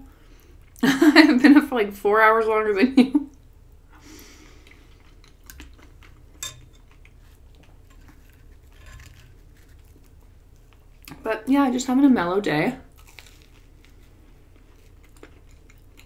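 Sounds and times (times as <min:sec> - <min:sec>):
chewing pasta: 0:04.4 - 0:11.2, 0:12.9 - 0:16.0.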